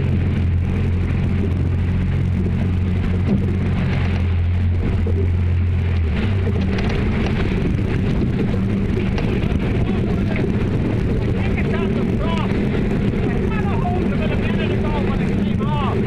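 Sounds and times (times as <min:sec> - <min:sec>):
outboard engines humming: 0:00.0 - 0:16.0
water chop against hull: 0:00.0 - 0:16.0
wind on microphone: 0:00.0 - 0:16.0.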